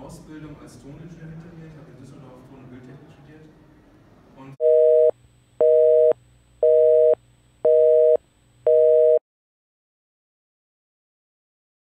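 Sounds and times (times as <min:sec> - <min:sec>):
telephone busy signal beeps: 0:04.6 - 0:09.2.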